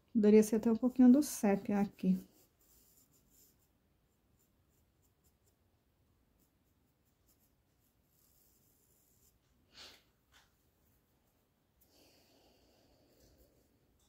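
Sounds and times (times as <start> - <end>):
paintbrush strokes on fabric: 0.9 - 10.0.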